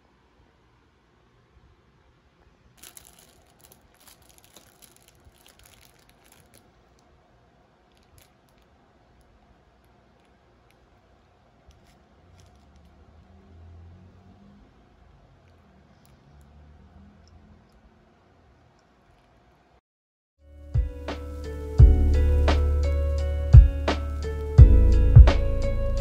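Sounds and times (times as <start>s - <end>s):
plastic wrapper crinkling: 2.8s - 7.1s, 7.8s - 12.9s.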